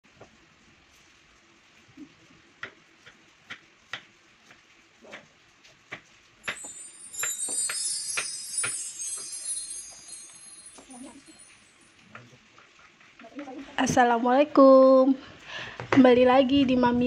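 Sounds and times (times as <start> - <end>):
tinkling chime jingle: 6.4 - 12.0.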